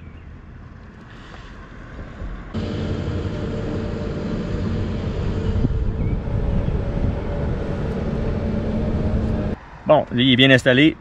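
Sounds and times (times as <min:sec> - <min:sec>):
steady motor drone: 0:02.6 - 0:09.6.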